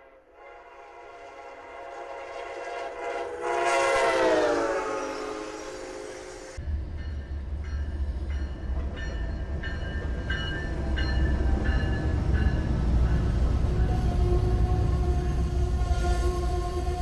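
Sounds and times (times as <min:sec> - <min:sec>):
train horn: 0:00.0 - 0:06.6, 0:13.6 - 0:17.0
diesel locomotive engine rumble: 0:00.6 - 0:17.0
locomotive bell ringing: 0:06.8 - 0:14.0.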